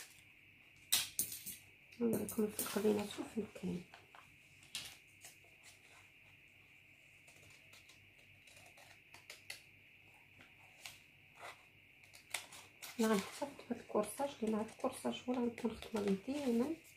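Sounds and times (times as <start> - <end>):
paper rustling and tapping: 14.4 - 16.8.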